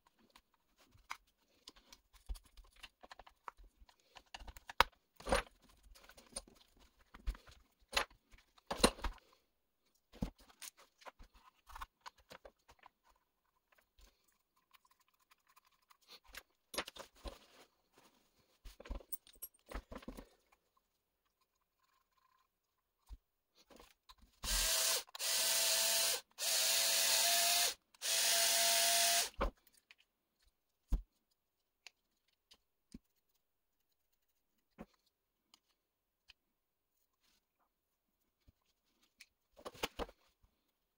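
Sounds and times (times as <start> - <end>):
plastic parts and tools clicking: 0.0 - 17.5, 29.1 - 33.2, 39.0 - 40.3
cordless drill whining: 24.4 - 29.4.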